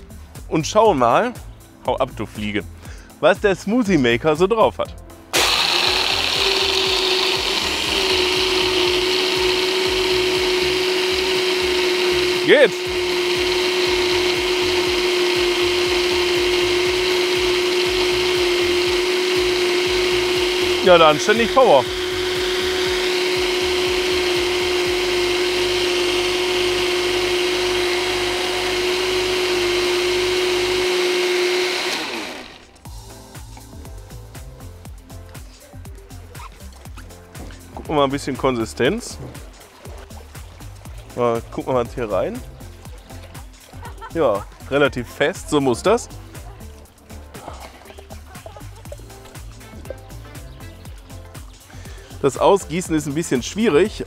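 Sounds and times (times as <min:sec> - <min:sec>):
blender motor whine: 0:05.3 - 0:33.6
ice grinding and rattling: 0:05.4 - 0:32.8.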